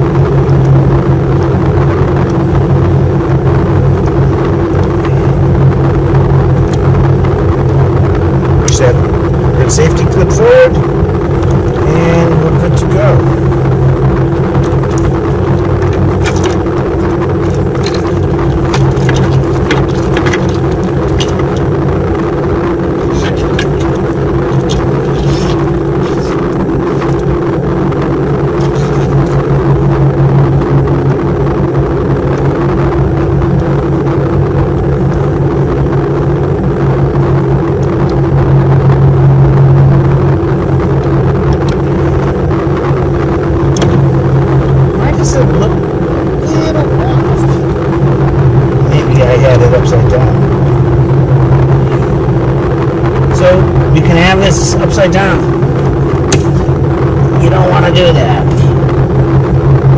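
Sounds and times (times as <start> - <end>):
loud mechanical drone: 0.0 - 59.9
motor humming: 0.0 - 59.9
wiring clicks and rattles: 6.5 - 29.6.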